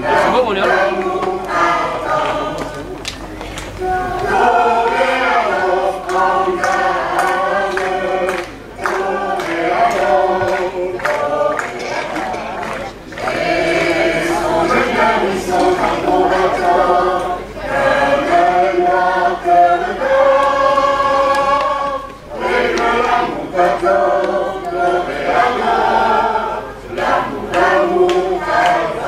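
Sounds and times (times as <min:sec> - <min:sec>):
children's choir singing: 0:00.0 - 0:29.0.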